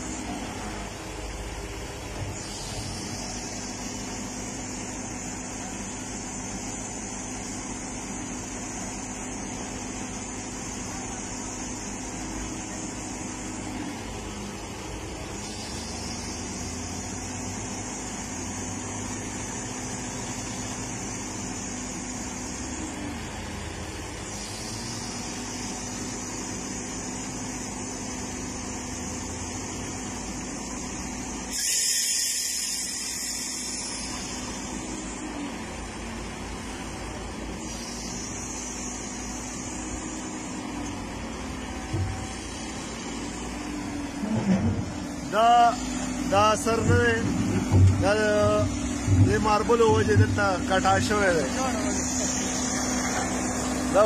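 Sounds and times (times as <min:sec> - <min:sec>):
excavator diesel engine straining: 0:00.0 - 0:54.0
high hiss: 0:02.3 - 0:13.8, 0:15.2 - 0:23.0, 0:24.2 - 0:35.2, 0:37.5 - 0:40.9.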